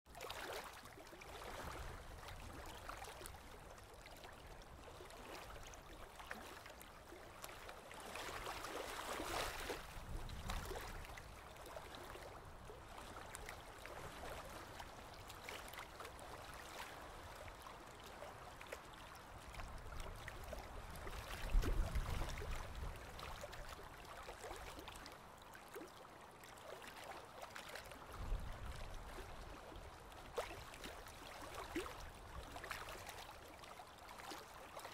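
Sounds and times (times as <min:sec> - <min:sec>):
choppy water lapping: 0:00.1 - 0:34.9
wind gusts on microphone: 0:09.7 - 0:11.2, 0:21.4 - 0:23.1.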